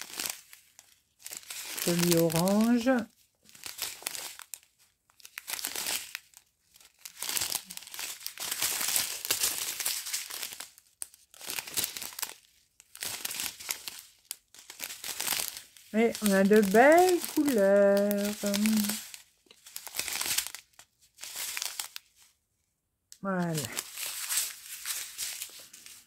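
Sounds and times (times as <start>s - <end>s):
plastic bags crinkling: 0.0s - 22.3s, 23.2s - 26.0s.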